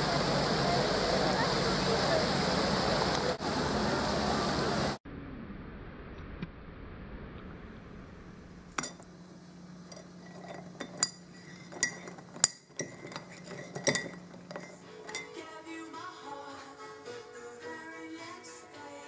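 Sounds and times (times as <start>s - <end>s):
teaspoon clinking in mug: 9.9s - 15.4s.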